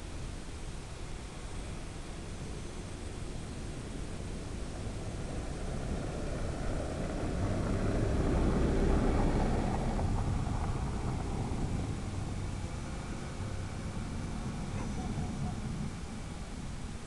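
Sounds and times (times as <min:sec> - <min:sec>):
quadcopter motors and propellers: 0:00.0 - 0:17.0
wind: 0:00.0 - 0:17.0.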